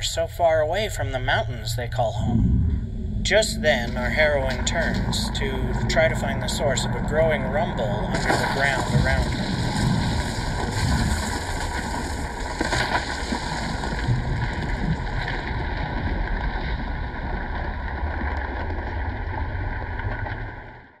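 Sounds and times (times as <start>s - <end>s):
deep rumbling: 0.0s - 20.9s.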